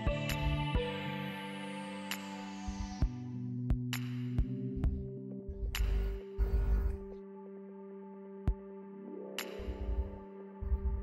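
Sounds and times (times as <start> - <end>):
ambient electronic music: 0.0 - 11.0.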